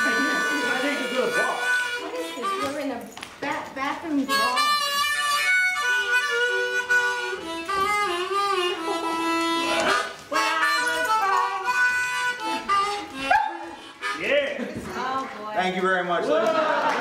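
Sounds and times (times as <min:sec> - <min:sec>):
harmonica playing slow melody: 0:00.0 - 0:03.1, 0:04.2 - 0:14.7.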